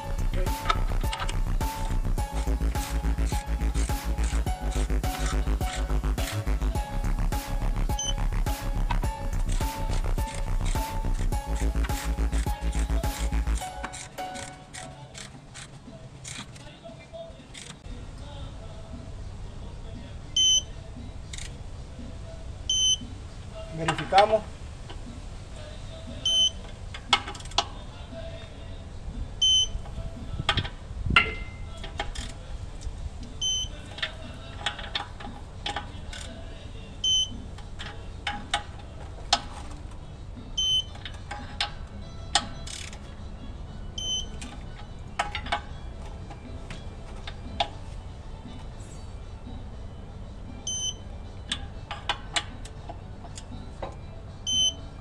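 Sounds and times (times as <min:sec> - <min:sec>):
short electronic beeps: 0:07.9 - 0:08.2, 0:20.4 - 0:20.7, 0:22.7 - 0:23.1, 0:26.2 - 0:26.6, 0:29.4 - 0:29.8, 0:33.4 - 0:33.8, 0:37.0 - 0:37.4, 0:40.6 - 0:40.9, 0:44.0 - 0:44.4, 0:50.6 - 0:51.0, 0:54.5 - 0:54.8
wrench clicking on bolts: 0:09.0 - 0:16.7, 0:26.3 - 0:27.7, 0:30.5 - 0:32.4, 0:33.4 - 0:36.4, 0:40.6 - 0:43.2.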